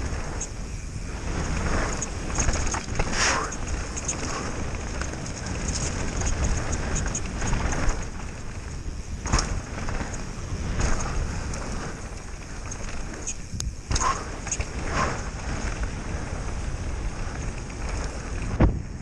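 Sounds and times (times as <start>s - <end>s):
bike rattling and clicking: 0.0s - 19.0s
bike tyres rolling over dirt: 0.0s - 19.0s
wind buffeting microphone: 0.0s - 19.0s.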